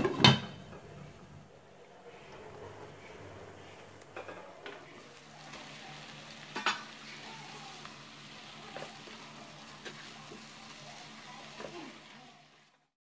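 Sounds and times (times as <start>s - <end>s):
vegetables sizzling in a pan: 4.2s - 13.0s.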